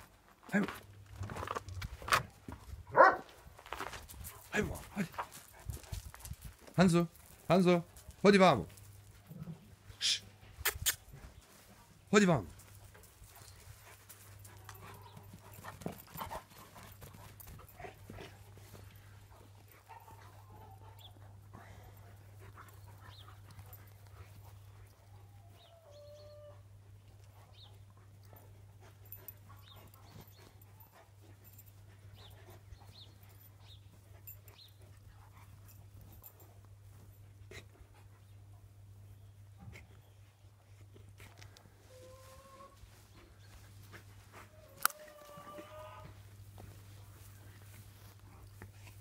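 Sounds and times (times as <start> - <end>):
dogs scuffling on grass: 0.0 - 21.4, 40.2 - 49.0
dogs panting: 3.8 - 25.7, 26.7 - 41.8, 42.8 - 45.4, 46.0 - 49.0.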